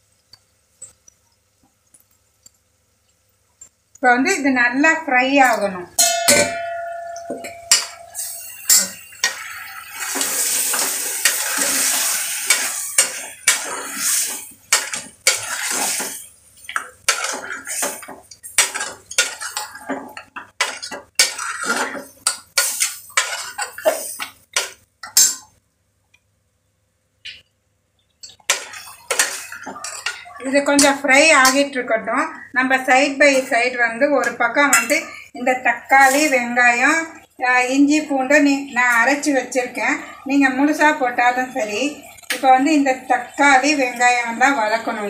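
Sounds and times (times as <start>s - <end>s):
frying sizzle: 0.0s - 25.6s, 28.0s - 45.0s
ladle scraping metal pot: 6.0s - 16.2s, 28.5s - 31.7s.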